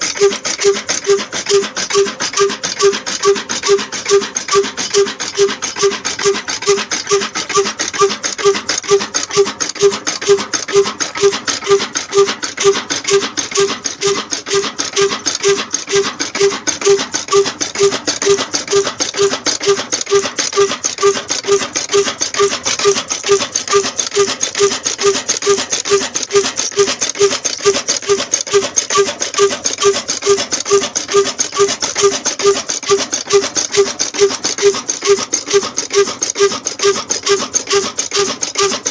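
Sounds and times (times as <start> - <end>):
diesel engine puffing steadily: 0.0 - 38.9.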